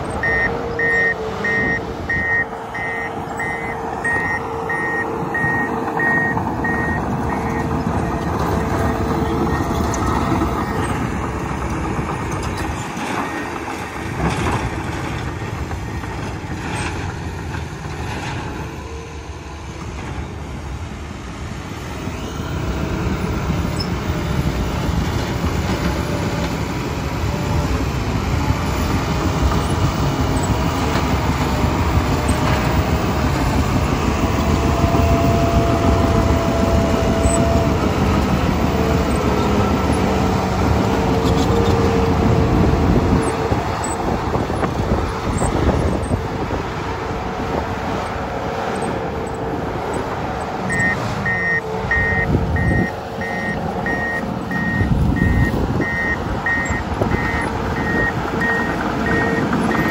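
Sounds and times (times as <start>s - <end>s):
steel tracks clanking: 0.0s - 20.9s
diesel engine working under load: 0.0s - 59.9s
reverse alarm beeping: 0.1s - 9.7s, 50.7s - 59.9s.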